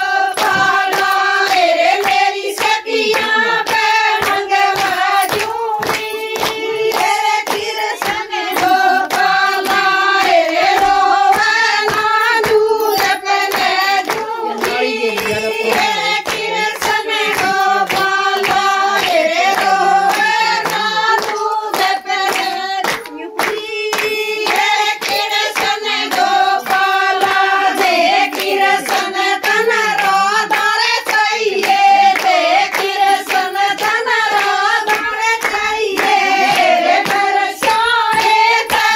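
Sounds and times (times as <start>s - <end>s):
rhythmic handclapping: 0.0s - 38.9s
women singing together: 0.0s - 38.9s.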